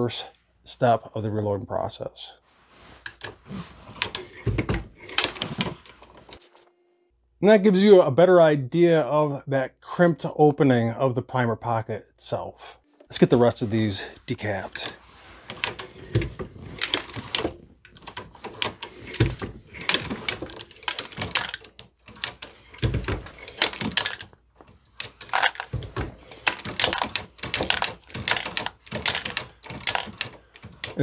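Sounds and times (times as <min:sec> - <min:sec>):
metallic clinks of brass cases: 0:20.4 - 0:22.4, 0:23.3 - 0:25.7, 0:26.4 - 0:31.0.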